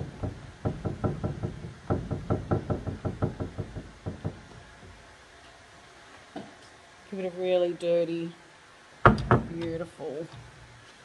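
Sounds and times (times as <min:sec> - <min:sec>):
rapid soft dabbing knocks: 0:00.0 - 0:05.1.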